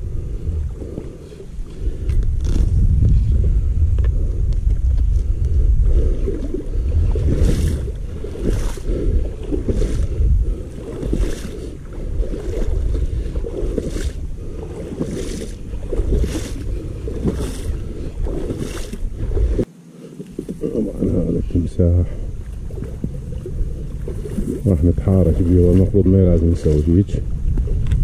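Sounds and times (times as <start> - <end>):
wind rumble on microphone: 0.0 - 19.7, 20.4 - 28.0
feet splashing in shallow water: 5.1 - 21.4, 22.2 - 28.0.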